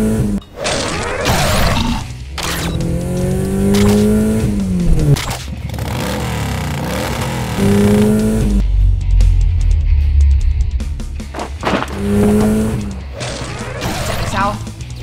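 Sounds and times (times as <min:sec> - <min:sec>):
car engine revving: 0:00.0 - 0:14.8
deep rumble: 0:04.4 - 0:05.2, 0:08.2 - 0:13.7.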